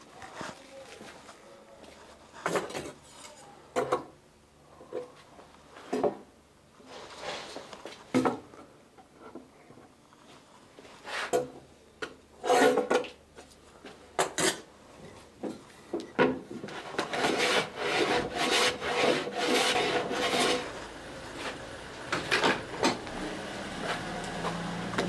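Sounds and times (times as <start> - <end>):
hand tool scraping wood: 16.6 - 25.0.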